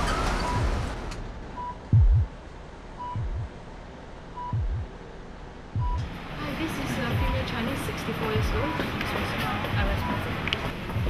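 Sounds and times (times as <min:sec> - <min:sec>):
heart monitor beeping: 0:01.6 - 0:02.3, 0:03.0 - 0:03.5, 0:04.4 - 0:04.9, 0:05.8 - 0:06.1, 0:08.3 - 0:08.9, 0:09.7 - 0:10.3
low double thump: 0:01.8 - 0:02.3, 0:03.2 - 0:03.5, 0:04.5 - 0:04.9, 0:05.8 - 0:06.1.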